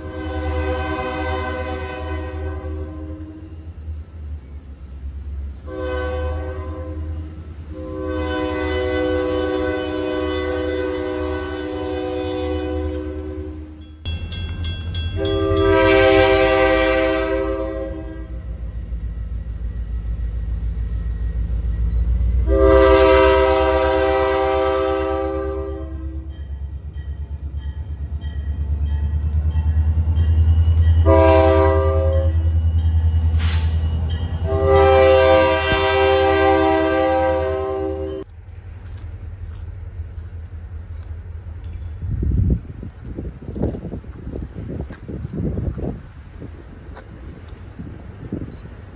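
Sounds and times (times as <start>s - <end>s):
locomotive air horn: 0.0s - 3.6s, 5.6s - 13.8s, 15.2s - 18.5s, 22.4s - 26.4s, 30.8s - 32.5s, 33.3s - 38.3s
low locomotive rumble: 0.0s - 48.9s.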